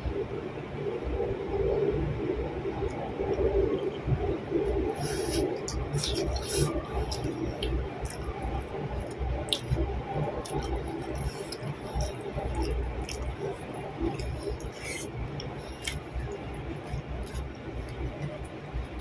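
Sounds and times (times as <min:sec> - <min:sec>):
person chewing: 0:04.7 - 0:19.0.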